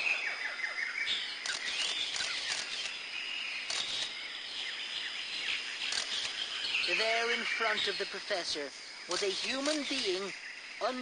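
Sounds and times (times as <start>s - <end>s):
crackles: 0.0s - 3.0s, 3.6s - 4.8s, 5.8s - 7.4s, 8.3s - 10.3s
birds chirping: 0.0s - 11.0s
insects chirping: 0.0s - 11.0s.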